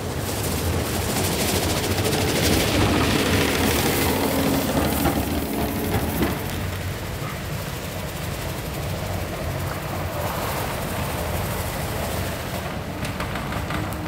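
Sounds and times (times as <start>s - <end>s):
streetcar rumbling on tracks: 0.0s - 14.0s
brooms sweeping snow hiss: 6.1s - 13.0s.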